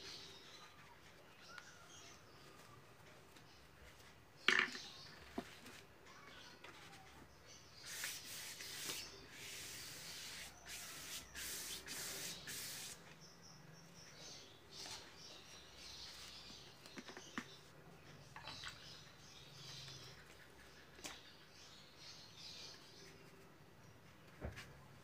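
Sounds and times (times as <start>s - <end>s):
paintbrush scratchy swishes: 7.8s - 13.0s.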